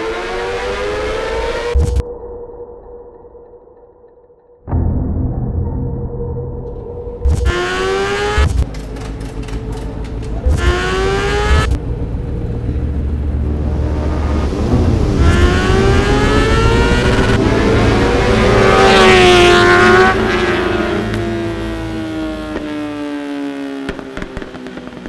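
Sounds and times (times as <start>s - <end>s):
motorcycle engine revving: 7.3s - 25.0s.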